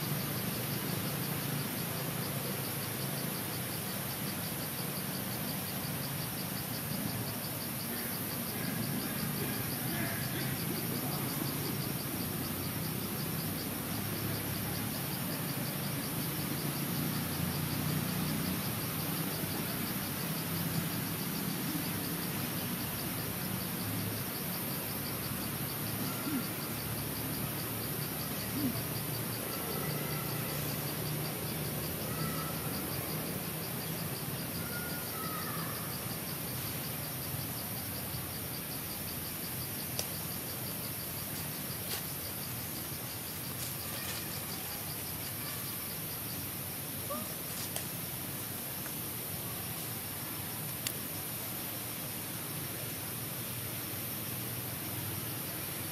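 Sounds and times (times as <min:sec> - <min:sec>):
insect pulsing trill: 0:00.0 - 0:52.2
insects droning: 0:00.0 - 0:55.9
faint clicks: 0:39.9 - 0:40.2.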